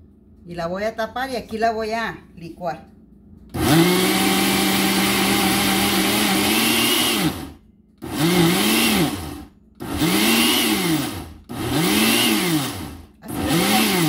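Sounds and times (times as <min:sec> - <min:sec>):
blender motor grinding: 0:03.5 - 0:14.0.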